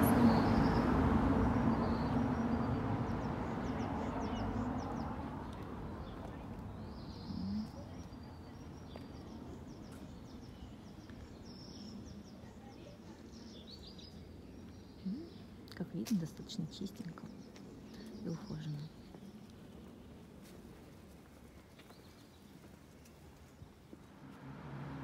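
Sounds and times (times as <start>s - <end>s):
vehicle engine hum: 0.0s - 8.1s, 23.9s - 25.0s
small birds chirping: 0.0s - 24.3s.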